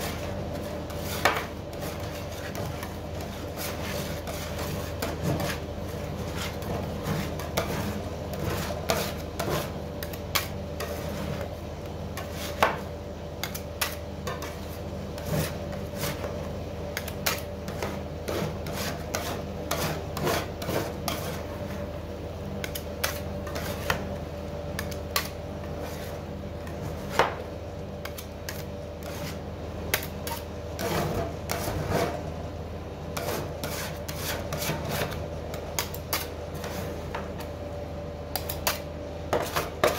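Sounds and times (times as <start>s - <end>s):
metal scrapers on steel plate: 17.0s - 21.5s, 30.2s - 32.3s, 33.2s - 35.2s.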